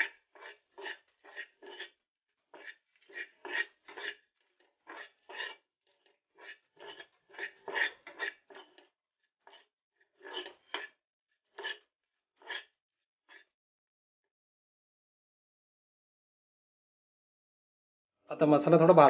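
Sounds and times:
spatula scraping a pan: 0.0s - 13.6s.

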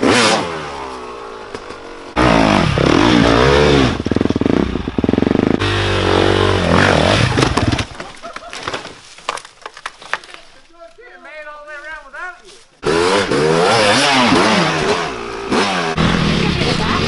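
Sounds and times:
dirt bike engine revving: 0.0s - 7.9s, 12.8s - 17.0s.

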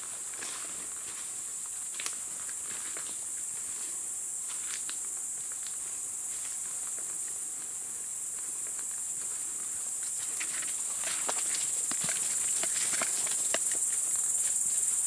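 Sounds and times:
insects stridulating: 0.0s - 15.0s
footsteps through leaf litter: 10.1s - 14.6s.

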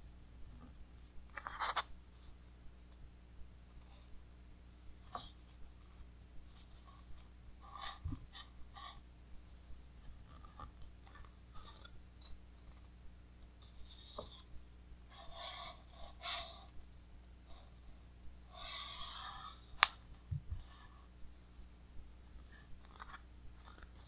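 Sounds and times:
book pages rustling: 1.3s - 1.9s, 22.8s - 24.0s.

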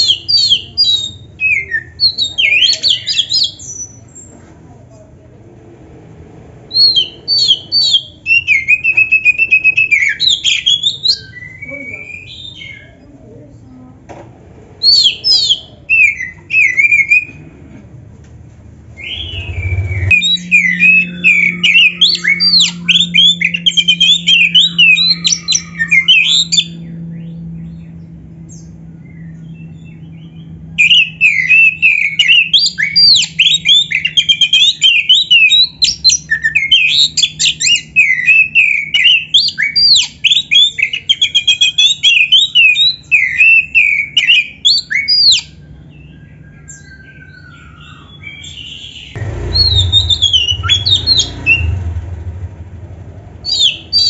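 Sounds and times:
songbird whistling song: 0.0s - 4.3s, 6.7s - 13.1s, 14.8s - 17.5s, 19.0s - 52.4s, 53.3s - 54.0s
steady low hum: 10.7s - 34.1s.

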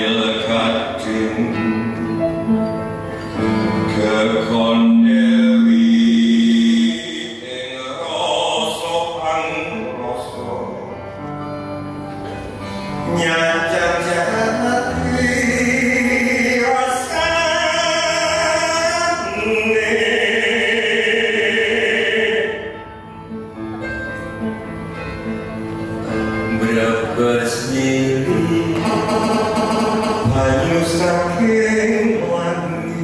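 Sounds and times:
instrumental accompaniment: 0.0s - 8.4s, 9.2s - 33.0s
person singing long held notes: 3.9s - 10.0s.

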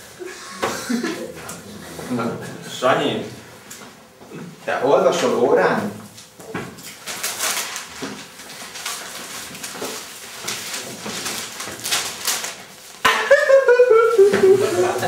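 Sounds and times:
newspaper rustling and crinkling: 6.8s - 13.0s
person speaking: 13.2s - 15.0s.

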